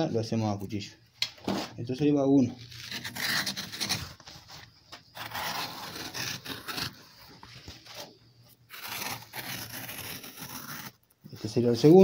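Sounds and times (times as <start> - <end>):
leather strip cutter scraping: 2.7 - 4.2, 5.1 - 7.1, 8.7 - 11.1.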